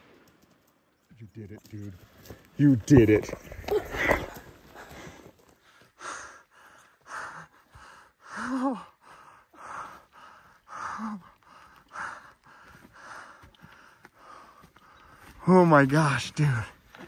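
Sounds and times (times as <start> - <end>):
person breathing hard: 3.8 - 15.4.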